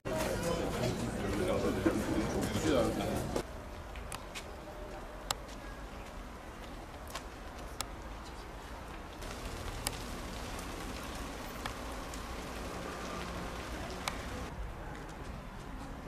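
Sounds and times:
outdoor background hiss: 3.4s - 14.7s.

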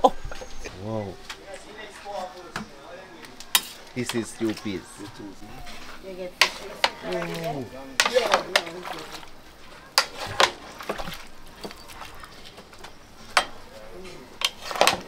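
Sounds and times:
cooking pots and utensils clattering: 3.4s - 15.0s.

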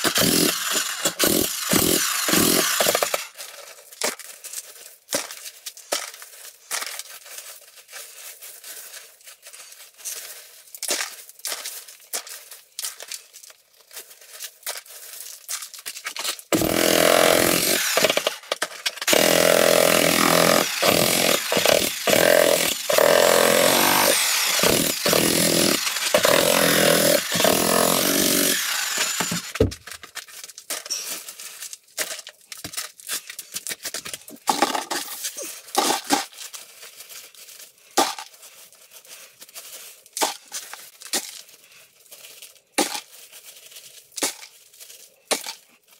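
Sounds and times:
jackhammer chiselling concrete: 0.0s - 3.3s, 16.5s - 18.4s, 19.0s - 29.6s
concrete chunks clattering: 0.0s - 38.7s.

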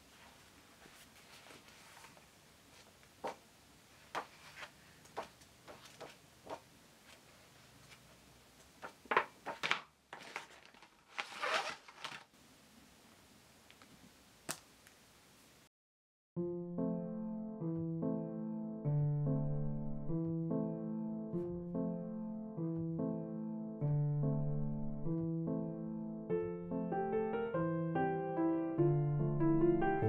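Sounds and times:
paper rustling: 0.1s - 2.9s, 4.1s - 8.0s, 8.7s - 12.3s
paper pages flipping: 8.8s - 12.3s.

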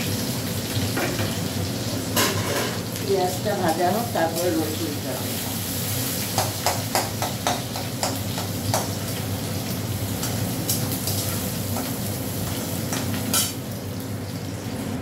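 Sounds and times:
onions sizzling in hot oil: 0.0s - 15.0s
spatula scraping and clinking on pan: 12.9s - 13.6s.

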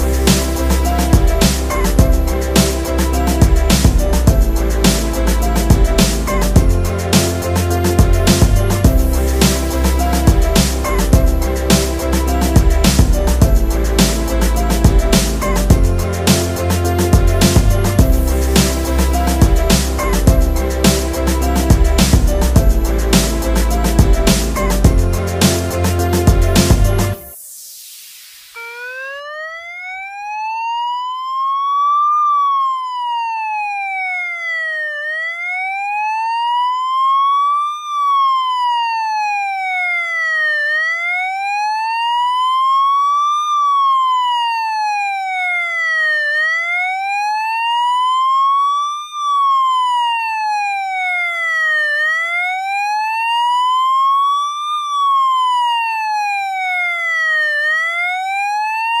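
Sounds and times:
electronic siren wailing: 27.1s - 59.0s.

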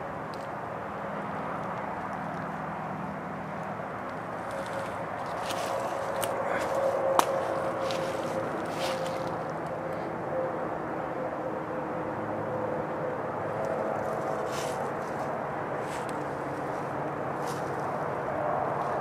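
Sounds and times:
low hum: 0.0s - 19.0s
footsteps crunching through leaves: 4.4s - 9.6s, 14.0s - 18.0s.

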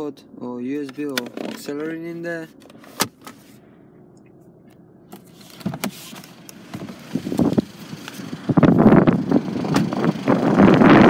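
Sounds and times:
phone handling knocks and rustling: 0.8s - 1.8s
wind buffeting microphone: 7.0s - 11.0s.

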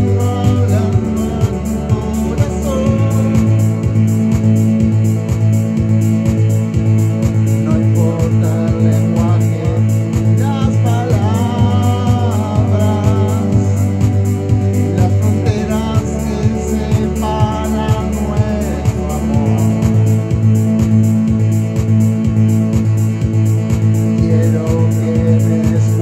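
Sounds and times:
man singing: 0.0s - 4.7s, 7.6s - 20.6s, 24.0s - 26.0s
electronic keyboard with beat: 0.0s - 26.0s.

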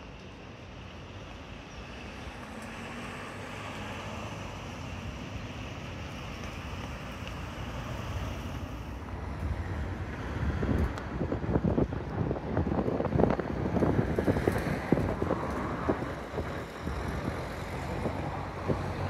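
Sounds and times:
car tyre noise on road: 0.0s - 19.0s
wind buffeting microphone: 4.6s - 19.0s.

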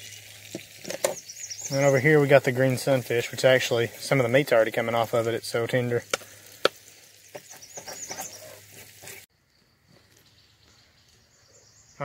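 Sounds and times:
oil sizzling in a frying pan: 0.0s - 9.3s.

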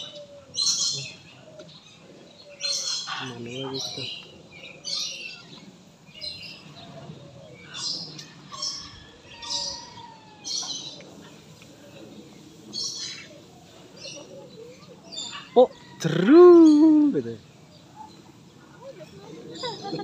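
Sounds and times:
birds making harsh high calls: 0.0s - 20.0s.

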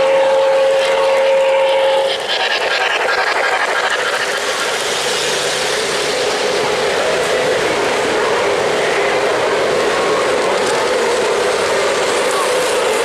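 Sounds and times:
model locomotive whistle: 0.0s - 2.9s
model train wheels rumbling: 0.0s - 13.0s.

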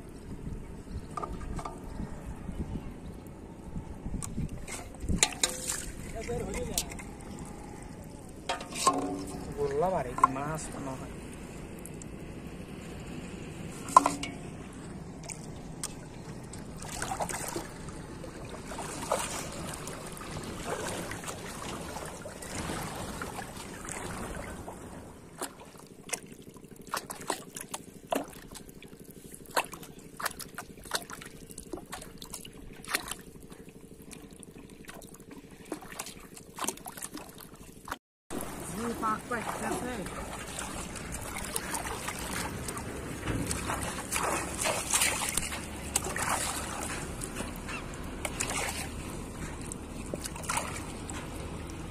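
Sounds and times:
shallow water sloshing and trickling: 0.0s - 51.9s
steady low hum: 0.0s - 51.9s
small splashes and drips: 13.8s - 24.7s, 25.3s - 51.9s.

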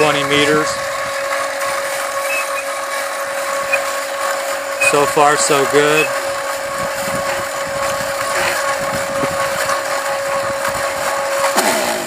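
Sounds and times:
stepper motor whining: 1.7s - 11.3s.

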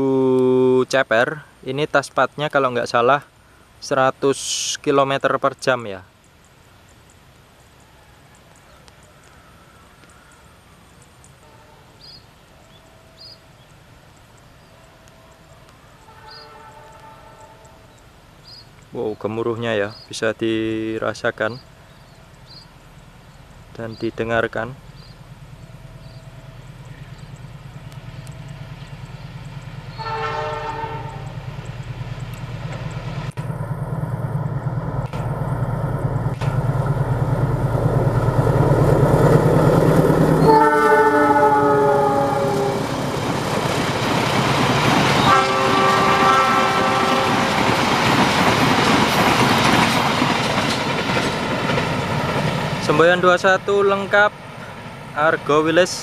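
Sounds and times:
train horn: 11.4s - 12.1s, 16.0s - 17.9s, 29.9s - 31.4s, 40.4s - 43.0s, 45.2s - 47.7s
small bird chirping: 17.9s - 18.8s, 21.5s - 24.2s, 24.9s - 30.0s
diesel locomotive rumble: 20.7s - 56.0s
low steady rumble: 30.6s - 42.9s.

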